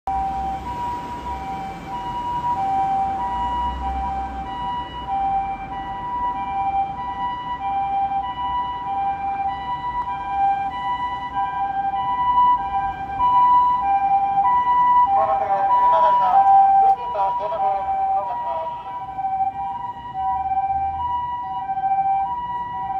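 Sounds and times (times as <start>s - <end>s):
two-tone ambulance siren: 0.1s - 22.9s
person speaking: 15.1s - 19.0s.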